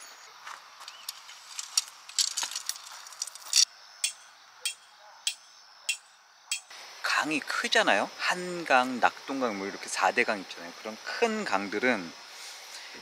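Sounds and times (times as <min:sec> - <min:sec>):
hammer clinking on metal tent peg: 0:04.0 - 0:06.7.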